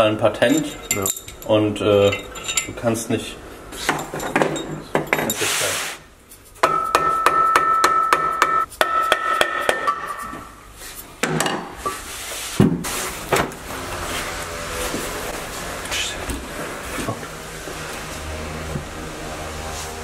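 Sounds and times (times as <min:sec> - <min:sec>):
metal parts set down: 0:00.5 - 0:02.8
hammer tapping on metal: 0:06.6 - 0:10.2.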